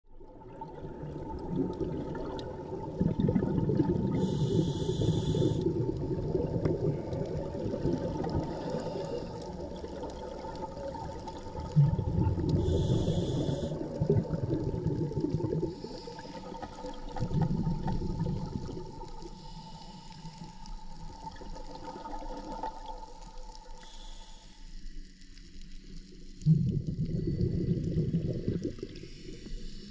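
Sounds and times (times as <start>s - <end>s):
exhaled air bubbling: 0.1s - 23.9s, 26.3s - 29.9s
regulator inhalation hiss: 4.1s - 5.7s, 12.6s - 13.8s, 19.2s - 20.6s, 23.7s - 24.8s.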